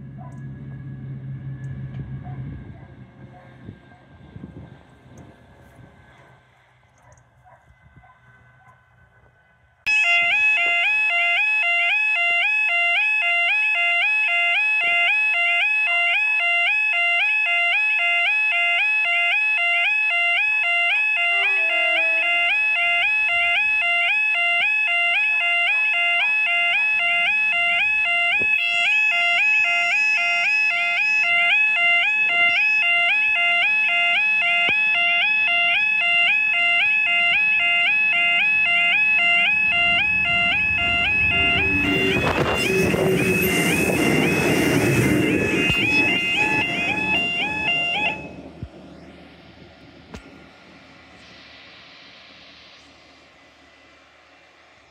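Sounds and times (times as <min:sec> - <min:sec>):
level crossing warning alarm: 0:09.9 - 0:50.2.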